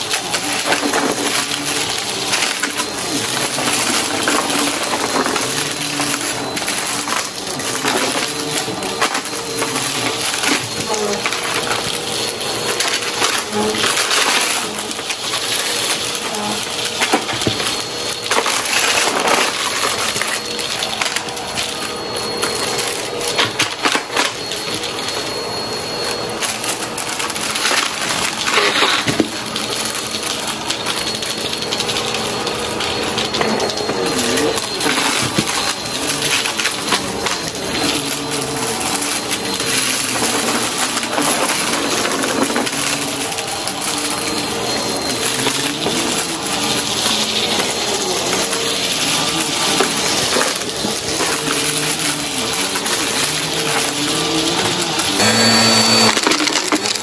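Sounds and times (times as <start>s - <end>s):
vacuum cleaner motor whine: 0.0s - 57.0s.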